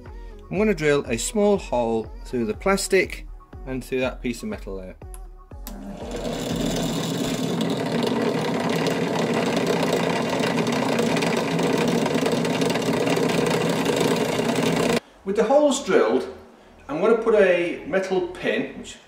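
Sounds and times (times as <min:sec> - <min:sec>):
bench drill drilling plastic: 0:05.7 - 0:15.0.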